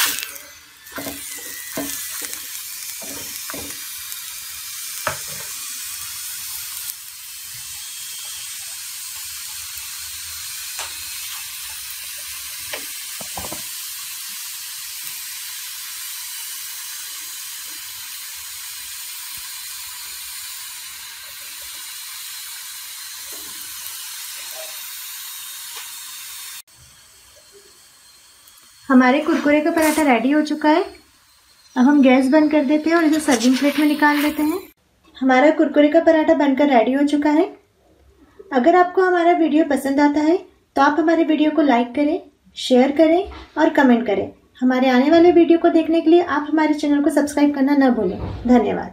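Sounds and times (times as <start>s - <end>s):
flatbread frying in oil: 0.0s - 34.8s.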